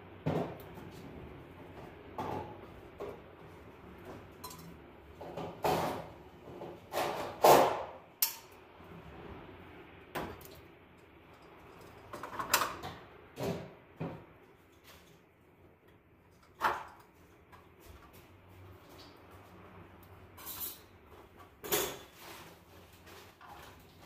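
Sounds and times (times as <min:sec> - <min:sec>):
wires scraping and rustling: 0:16.3 - 0:24.0.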